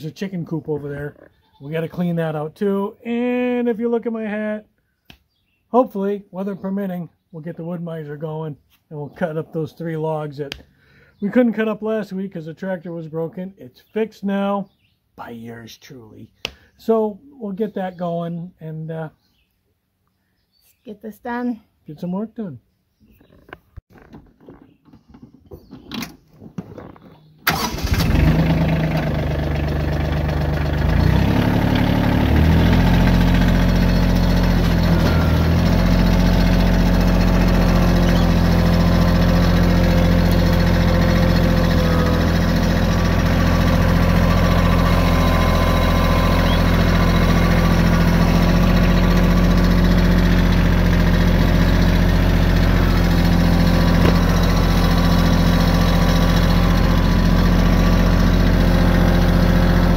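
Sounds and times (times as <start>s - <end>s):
tractor engine starting and running: 23.9s - 59.9s.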